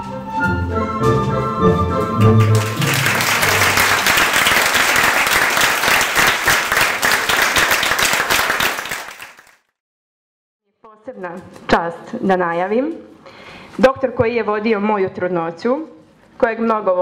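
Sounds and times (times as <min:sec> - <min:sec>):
dance music: 0:01.5 - 0:04.7
audience applause: 0:02.0 - 0:09.6.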